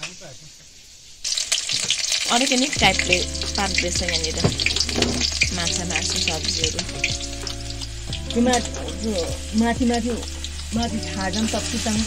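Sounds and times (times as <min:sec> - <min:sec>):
hot oil sizzling and crackling: 0:00.0 - 0:12.0
person's voice: 0:02.3 - 0:04.6, 0:05.5 - 0:07.1, 0:08.3 - 0:12.0.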